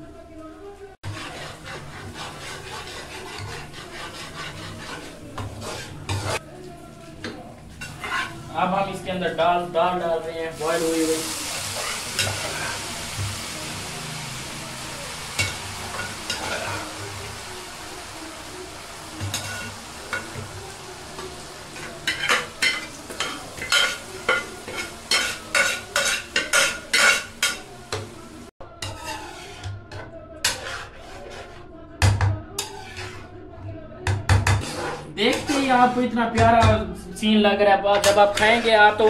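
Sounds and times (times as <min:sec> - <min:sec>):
metal spoon scraping a pan: 0:01.0 - 0:06.4, 0:07.7 - 0:08.6, 0:10.7 - 0:12.9, 0:15.3 - 0:17.5, 0:19.2 - 0:20.5, 0:21.2 - 0:28.1, 0:28.7 - 0:33.4, 0:34.0 - 0:36.8, 0:37.8 - 0:39.0
frying sizzle: 0:01.0 - 0:29.8, 0:37.9 - 0:39.0.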